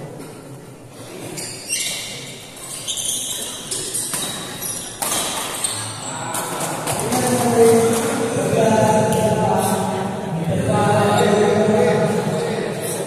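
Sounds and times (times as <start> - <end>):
sneakers squeaking on floor: 1.0 - 6.1
murmur of voices: 5.7 - 13.0.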